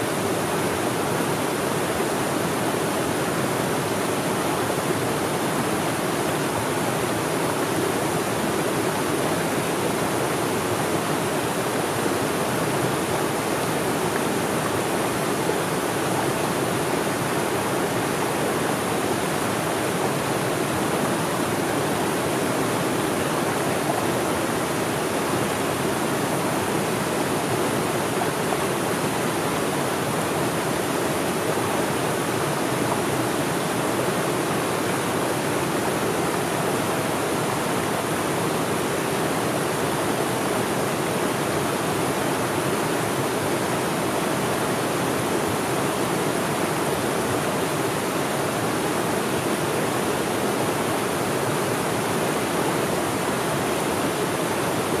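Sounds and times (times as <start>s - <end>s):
water rushing over rocks: 0.0s - 55.0s.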